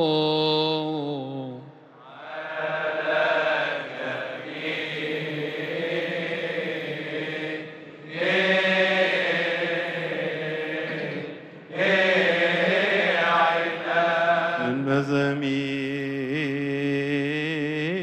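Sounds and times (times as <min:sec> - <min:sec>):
man chanting with vibrato: 0:00.0 - 0:01.8, 0:14.5 - 0:18.0
person chanting: 0:00.0 - 0:18.0.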